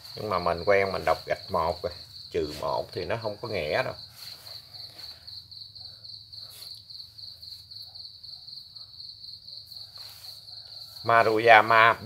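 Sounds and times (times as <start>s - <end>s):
cricket trilling: 0.0s - 12.0s.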